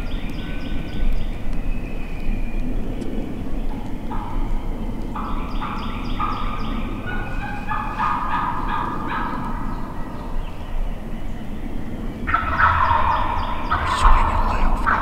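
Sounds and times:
wild turkeys gobbling: 3.8s - 10.3s, 12.2s - 15.0s.

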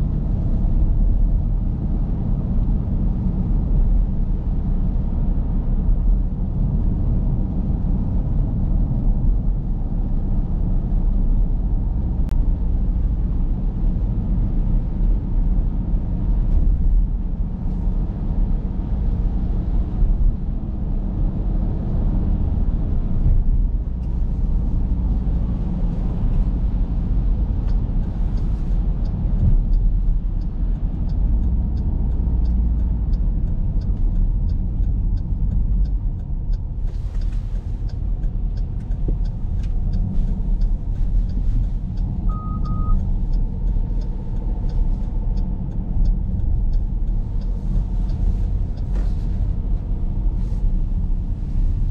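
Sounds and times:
engine and tyres on wet road: 0.0s - 51.9s
light regular ticking: 24.0s - 50.4s.

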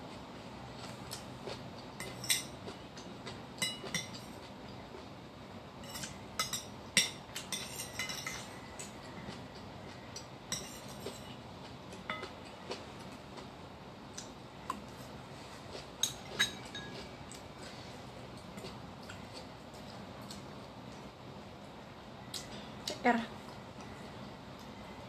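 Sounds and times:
metal spoon clinking on ceramic bowl: 10.5s - 11.3s, 16.0s - 17.0s.

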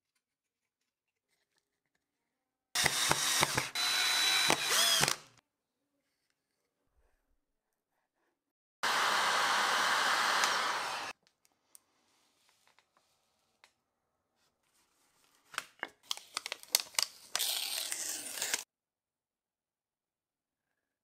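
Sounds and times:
hot-air gun blowing: 8.8s - 11.1s.

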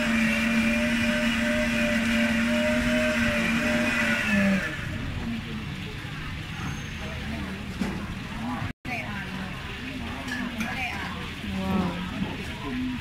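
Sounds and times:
electric blender running: 0.0s - 4.9s.

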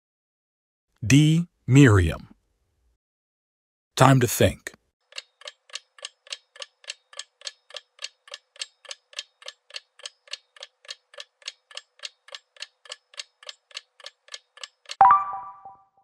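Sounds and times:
countdown timer ticking: 14.9s - 15.8s.

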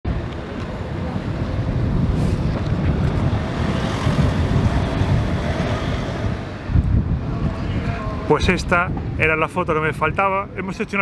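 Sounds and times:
wind buffeting microphone: 0.1s - 11.0s.

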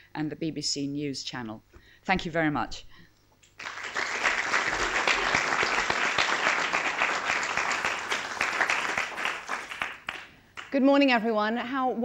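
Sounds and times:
audience applauding: 3.6s - 10.7s.

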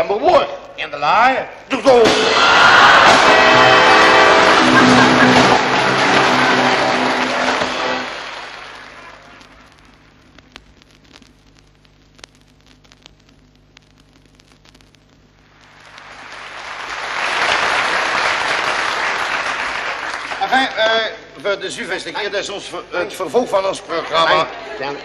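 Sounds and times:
record crackle and clicks: 0.0s - 0.8s, 4.4s - 18.8s
audience applause: 2.2s - 9.6s, 15.7s - 20.8s.

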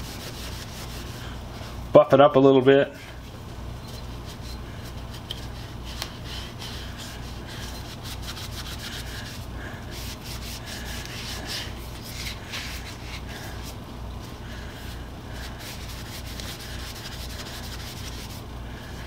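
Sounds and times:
rag rubbing on wooden handle: 0.0s - 1.8s, 4.0s - 13.8s, 15.4s - 18.5s.

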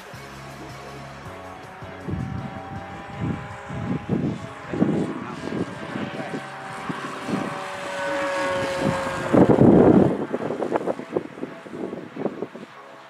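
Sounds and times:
model plane motor whine: 0.2s - 13.0s.

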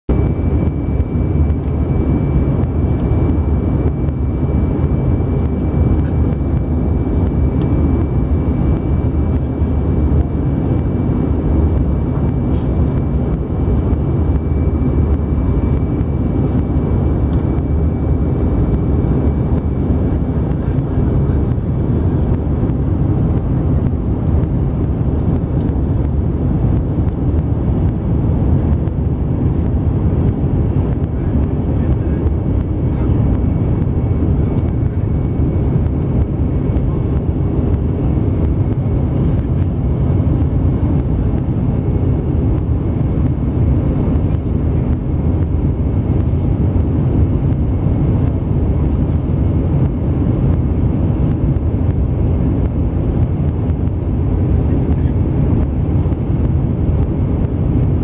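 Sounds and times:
aircraft cabin engine rumble: 0.1s - 58.0s.

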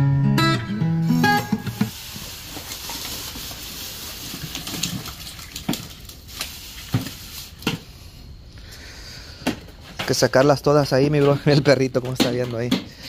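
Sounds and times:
steady hiss: 1.0s - 10.0s
fish slapping on concrete: 2.5s - 7.8s.

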